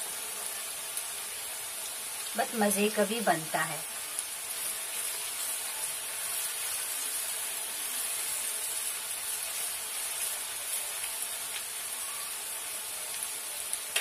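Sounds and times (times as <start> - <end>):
onions sizzling in a frying pan: 0.0 - 14.0
spatula stirring in a pan: 4.0 - 14.0.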